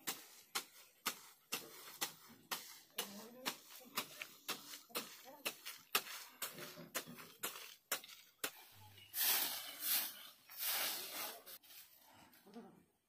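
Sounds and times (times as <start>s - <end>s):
leaves rustling swishes: 9.0s - 12.0s.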